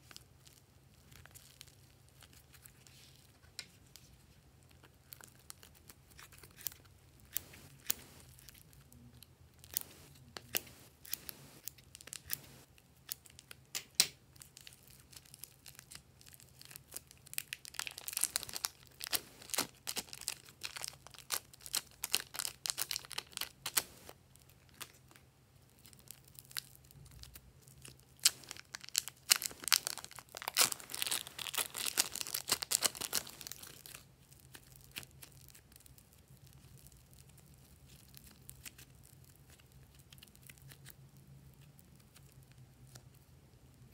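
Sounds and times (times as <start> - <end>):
clay crackling and tearing: 0.0 - 43.2
plastic packets crinkling: 14.4 - 25.2, 25.8 - 37.2.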